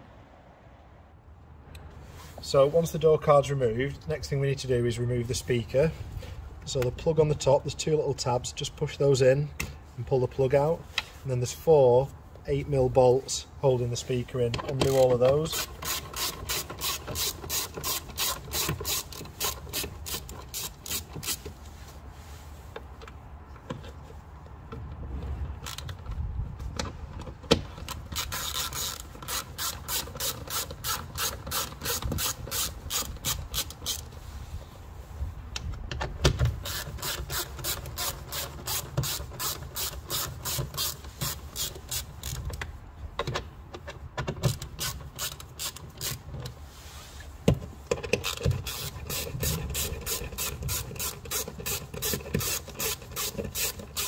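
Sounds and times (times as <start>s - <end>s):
ratchet driver clicking: 14.5s - 21.5s, 27.7s - 34.1s, 36.6s - 46.2s, 47.9s - 54.0s.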